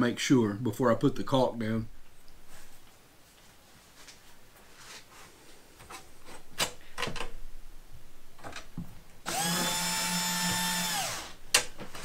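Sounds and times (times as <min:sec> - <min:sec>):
cordless drill driving screw: 0:09.3 - 0:11.4.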